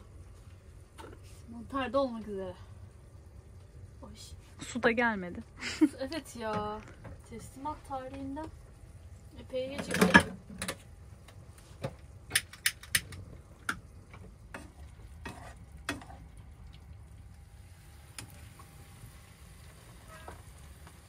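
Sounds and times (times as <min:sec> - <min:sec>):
food frying: 0:00.0 - 0:21.0
spoon scraping a frying pan: 0:14.6 - 0:16.2.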